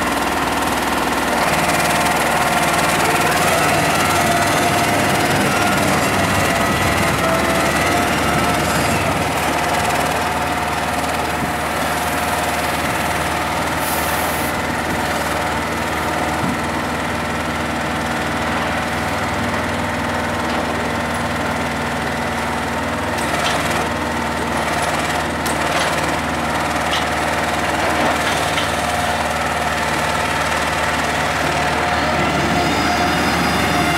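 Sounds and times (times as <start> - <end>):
hydraulic whine: 0.0 - 15.4, 31.0 - 33.9
diesel truck engine running: 0.0 - 33.9.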